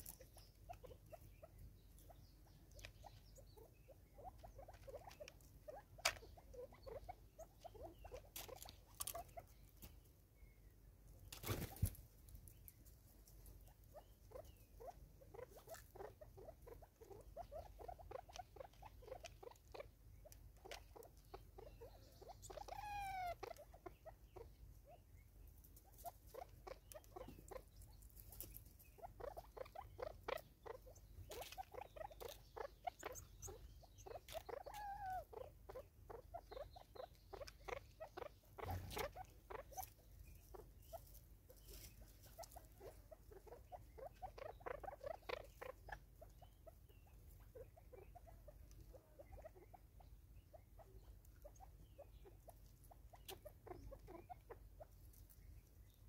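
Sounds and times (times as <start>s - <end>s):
birds pecking tapping: 25.7s - 34.9s.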